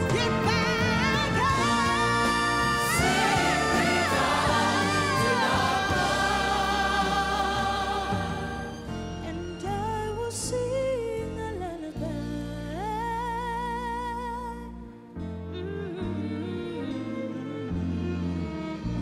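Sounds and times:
backing choir: 0:00.0 - 0:09.2
band playing sustained chords: 0:00.0 - 0:10.9
woman singing with vibrato: 0:00.0 - 0:14.7.

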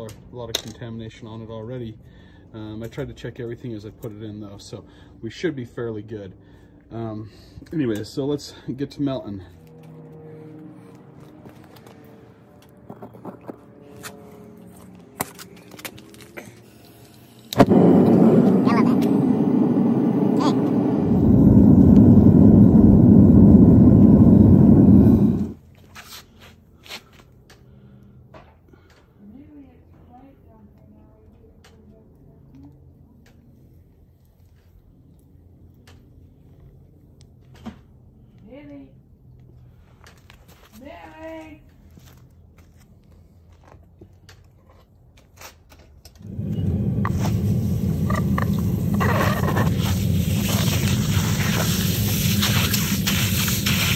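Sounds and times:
propane burner rushing: 0:15.3 - 0:25.6, 0:46.2 - 0:53.9
hot metal sizzling on ice: 0:46.3 - 0:53.9.

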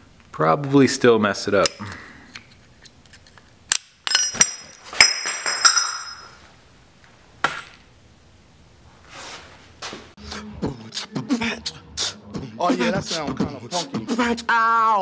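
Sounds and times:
small metal parts clinking: 0:02.3 - 0:06.4.

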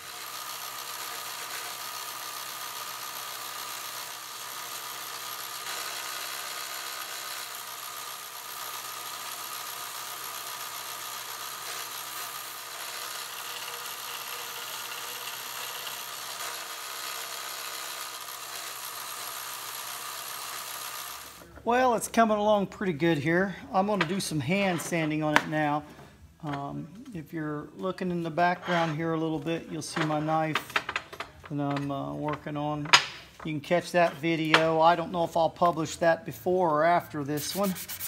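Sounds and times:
belt sander grinding metal: 0:00.0 - 0:21.5, 0:28.2 - 0:31.8.

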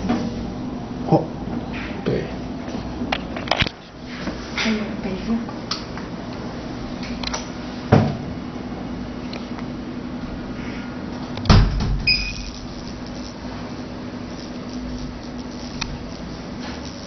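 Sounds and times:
machine low hum: 0:00.0 - 0:04.2, 0:05.0 - 0:17.0
short electronic beep: 0:12.1 - 0:12.6.

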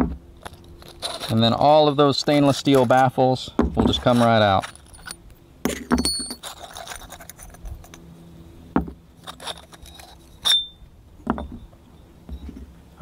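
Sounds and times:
metal baffles clinking and scraping: 0:00.4 - 0:08.1, 0:09.2 - 0:11.7.

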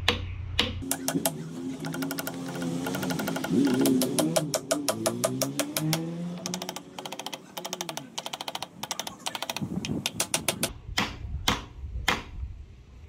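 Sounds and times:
hammer striking wooden block: 0:00.0 - 0:12.3
fast even ticking: 0:00.8 - 0:10.7.

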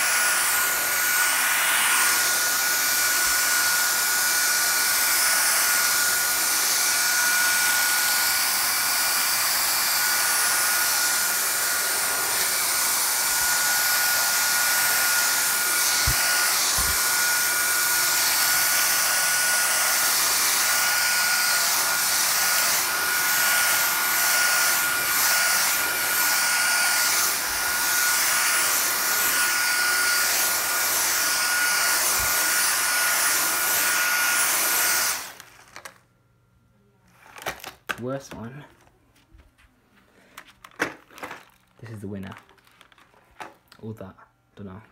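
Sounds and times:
vacuum cleaner running on rug: 0:00.0 - 0:35.4.

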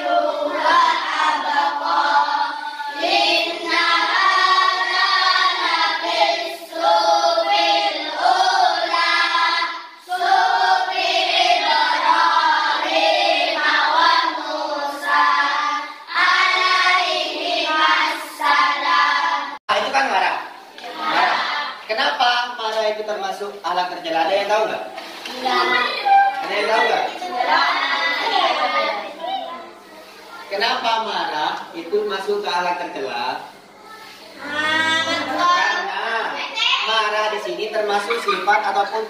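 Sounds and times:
children singing in unison: 0:00.0 - 0:19.6, 0:20.8 - 0:21.8, 0:25.3 - 0:29.1.

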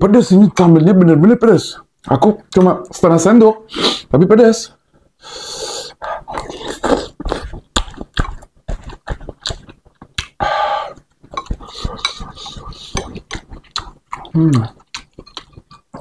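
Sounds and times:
wet mouth smacking: 0:06.2 - 0:16.0
huffing breaths: 0:10.4 - 0:13.0.

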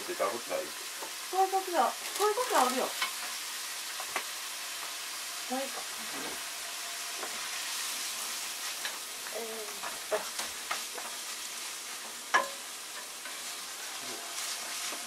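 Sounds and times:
meat sizzling in a frying pan: 0:00.0 - 0:15.0
sharp knocks against pan: 0:12.3 - 0:12.6.

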